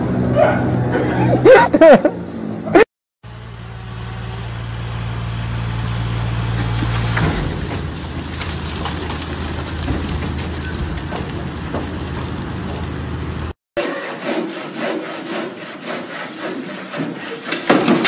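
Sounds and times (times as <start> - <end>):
low engine hum: 2.1 - 13.6
loud clatter: 6.4 - 13.6.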